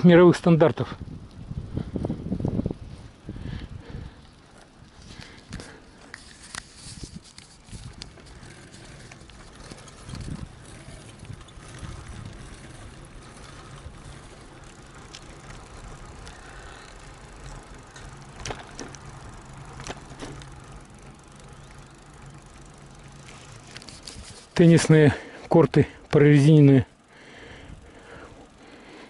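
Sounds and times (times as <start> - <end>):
bicycle tyres rolling on asphalt: 0.0 - 29.0.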